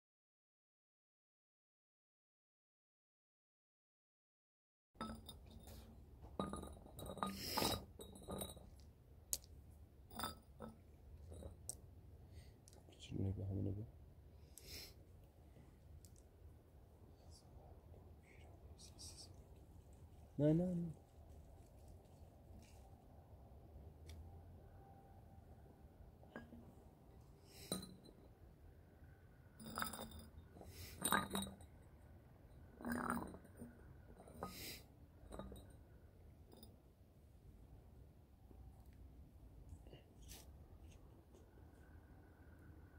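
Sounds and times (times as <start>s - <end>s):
glass bottles clinking: 5.0s - 8.8s, 10.1s - 11.7s, 27.5s - 28.1s, 29.6s - 31.8s.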